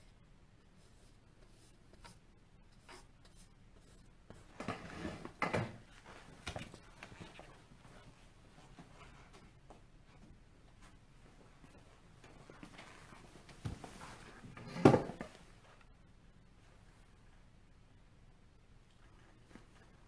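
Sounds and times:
paintbrush brushing on canvas: 0:00.6 - 0:04.7.

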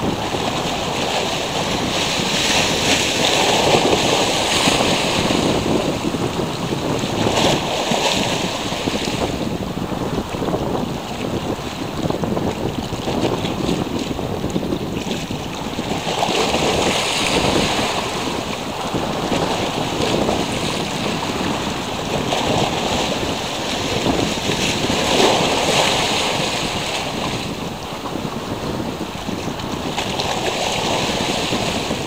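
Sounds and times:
rushing sea water: 0:00.0 - 0:32.0
wind buffeting microphone: 0:00.0 - 0:32.0.

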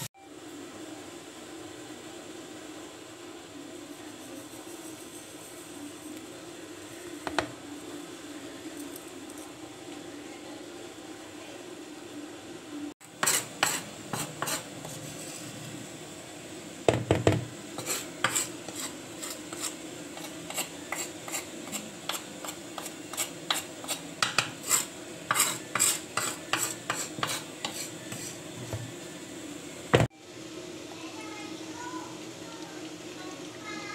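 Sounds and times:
spatula scraping stone mortar: 0:13.2 - 0:15.4, 0:17.8 - 0:28.8.

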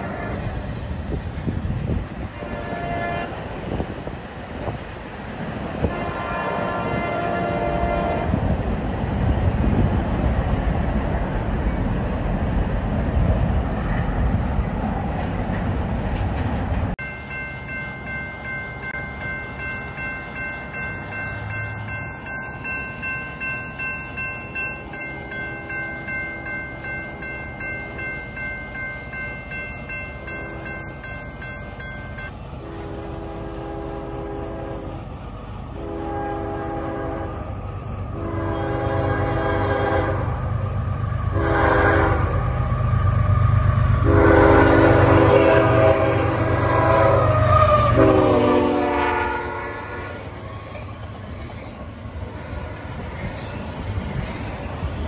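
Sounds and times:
train air horn blasts: 0:00.0 - 0:00.7, 0:02.2 - 0:03.4, 0:05.8 - 0:08.4, 0:32.6 - 0:34.9, 0:35.7 - 0:37.4, 0:38.1 - 0:40.4, 0:41.3 - 0:42.5, 0:44.0 - 0:50.4
train rumble: 0:00.0 - 0:55.0
crossing bell ringing: 0:17.0 - 0:32.4.

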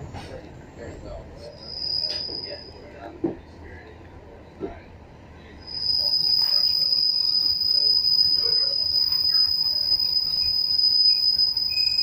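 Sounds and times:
train brakes squealing: 0:00.1 - 0:03.0, 0:05.6 - 0:12.0.

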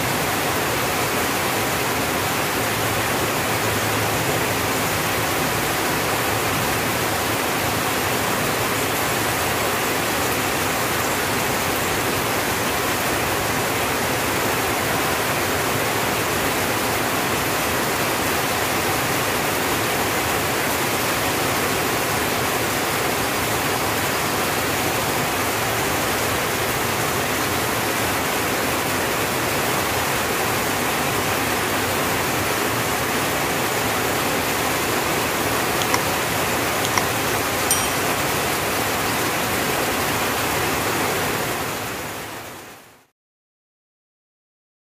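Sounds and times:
heavy rain on a tin roof: 0:00.0 - 0:35.4, 0:39.5 - 0:43.1.

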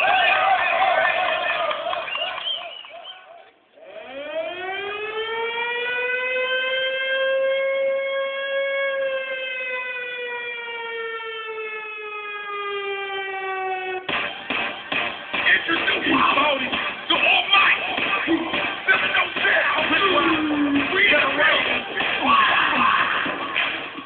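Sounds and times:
air-raid siren wailing: 0:03.8 - 0:14.1, 0:19.8 - 0:24.0.

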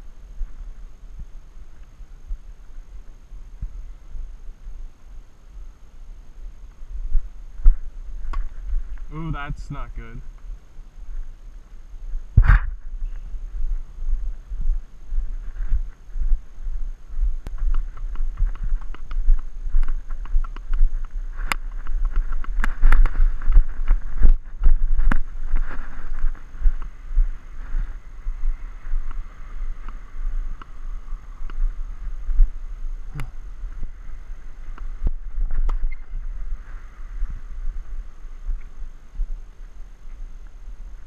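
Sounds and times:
wind buffeting microphone: 0:12.0 - 0:41.0.

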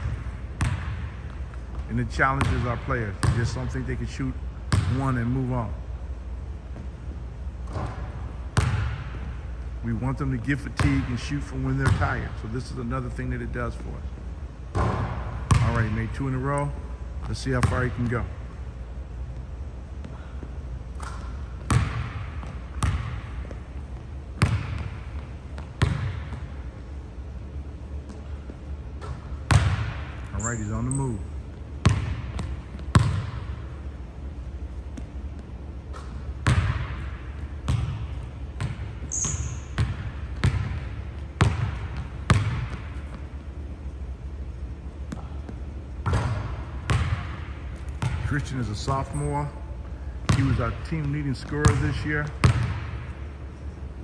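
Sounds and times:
basketball bouncing on hardwood floor: 0:00.0 - 0:03.5, 0:07.6 - 0:09.3, 0:11.8 - 0:12.0, 0:14.7 - 0:15.8, 0:21.0 - 0:23.8, 0:24.4 - 0:26.6, 0:28.1 - 0:30.2, 0:31.8 - 0:33.6, 0:34.9 - 0:43.3, 0:45.1 - 0:48.3, 0:50.3 - 0:53.1
sneaker squeak: 0:30.3 - 0:31.5, 0:38.6 - 0:40.7.

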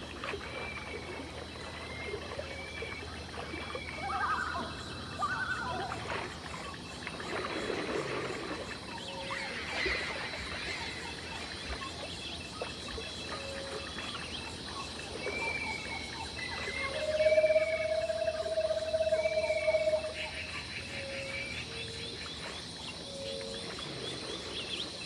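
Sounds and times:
insects chirping: 0:00.0 - 0:25.0
long steady tone: 0:15.2 - 0:22.0.

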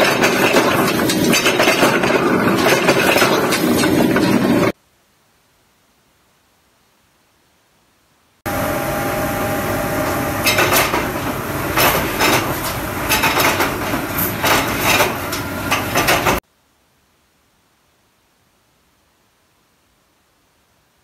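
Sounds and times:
metal clanks and clatters: 0:00.0 - 0:04.7, 0:10.4 - 0:16.4
metalworking machinery humming: 0:08.5 - 0:16.4.

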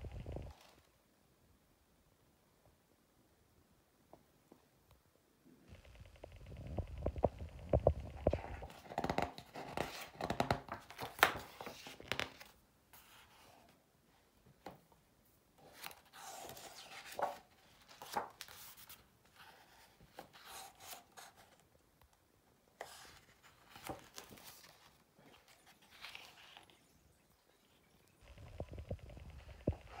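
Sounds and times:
book pages turning: 0:06.3 - 0:13.7, 0:15.6 - 0:21.6, 0:22.8 - 0:30.0
paper rustling: 0:15.6 - 0:21.6, 0:22.8 - 0:27.1.

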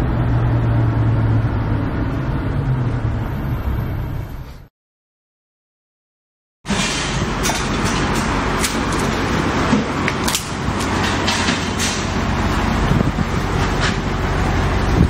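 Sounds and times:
metal bins clanking: 0:06.7 - 0:14.4
garbage truck engine idling: 0:06.7 - 0:15.0.

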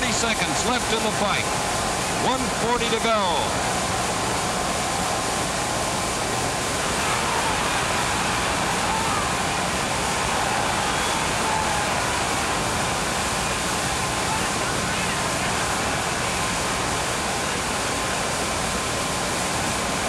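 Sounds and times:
arena crowd noise: 0:00.0 - 0:20.0
faint shouts: 0:06.9 - 0:12.3.

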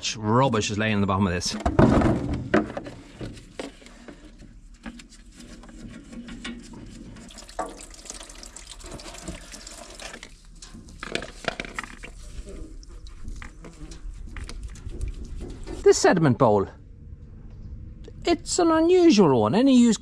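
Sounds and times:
fuel trickling into plastic funnel: 0:03.5 - 0:15.8.

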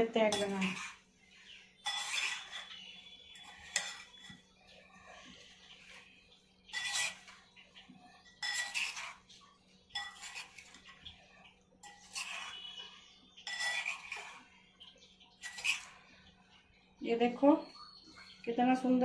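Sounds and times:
metal spoon scraping ceramic bowl: 0:00.2 - 0:14.6, 0:15.4 - 0:16.2.

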